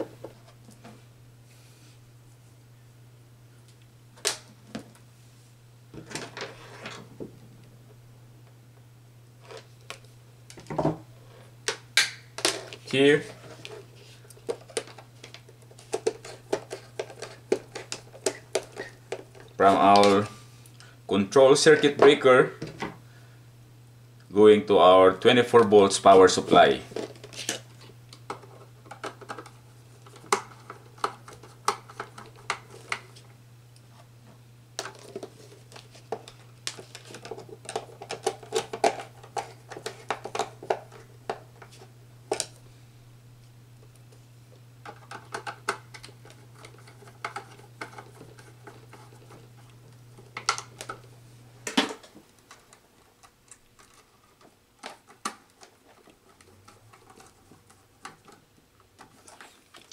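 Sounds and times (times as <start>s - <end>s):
wires clicking and rustling: 34.8s - 42.6s, 43.4s - 59.9s.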